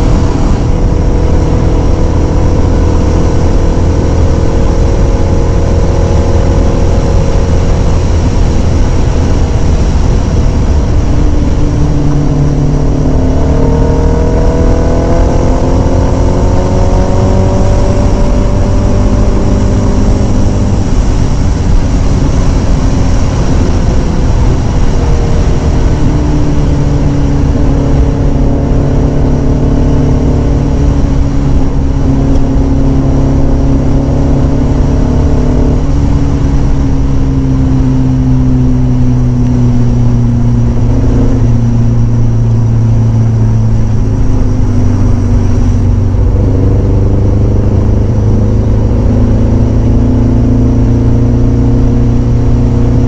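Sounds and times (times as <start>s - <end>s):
motorcycle engine accelerating: 0.0s - 53.0s
wind rumble on microphone: 0.0s - 53.0s.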